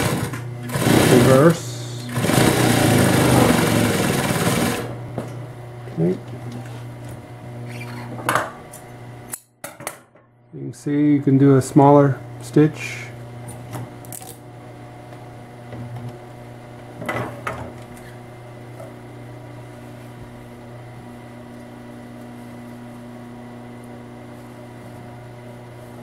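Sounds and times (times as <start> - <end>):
sewing machine motor humming: 0.0 - 5.0.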